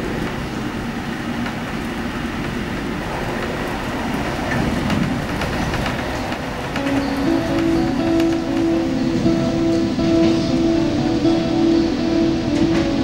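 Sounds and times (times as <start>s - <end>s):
train wheels rumbling on rails: 0.0s - 13.0s
music: 6.7s - 13.0s.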